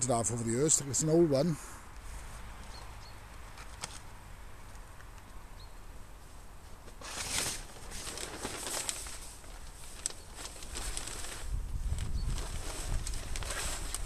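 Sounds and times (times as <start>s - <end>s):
tarpaulin rustling: 6.7s - 14.0s
crackling: 6.9s - 14.0s.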